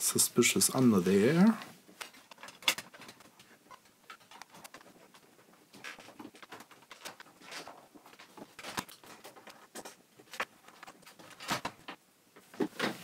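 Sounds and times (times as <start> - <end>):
plastic case being handled: 1.4 - 13.0.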